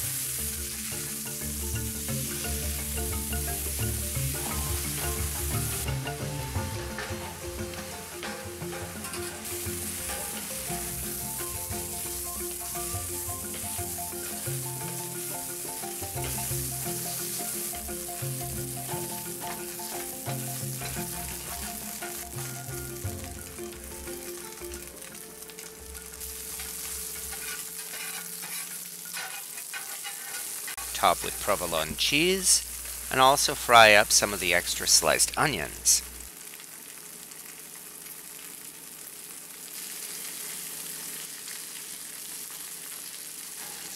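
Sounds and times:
quiet background music: 0.0s - 29.4s
steak sizzling in a skillet: 0.0s - 43.9s
wooden spatula stirring: 26.4s - 31.5s.

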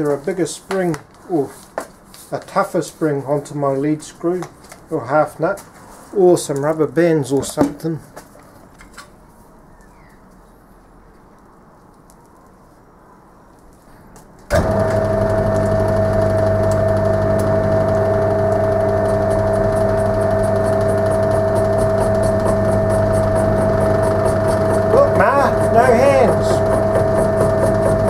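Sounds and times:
lathe motor humming: 14.5s - 28.0s.

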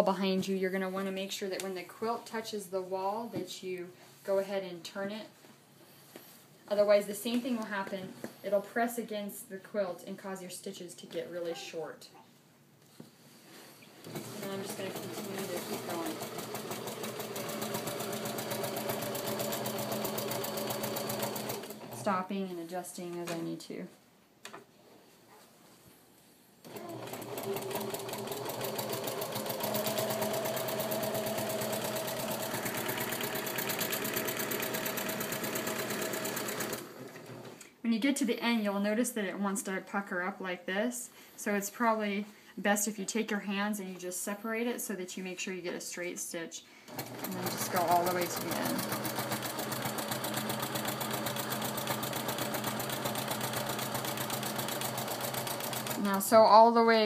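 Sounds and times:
sewing machine stitching: 14.0s - 22.2s, 26.6s - 37.6s, 46.9s - 56.2s.

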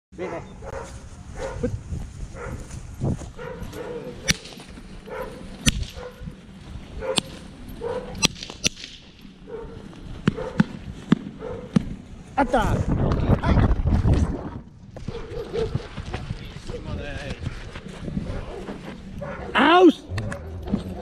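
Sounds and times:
sharp cracks: 4.2s - 4.7s, 5.6s - 6.0s, 8.2s - 9.2s.

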